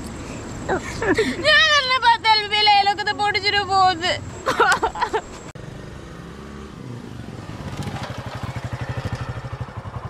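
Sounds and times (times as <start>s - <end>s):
scooter engine putt-putt: 5.6s - 10.0s.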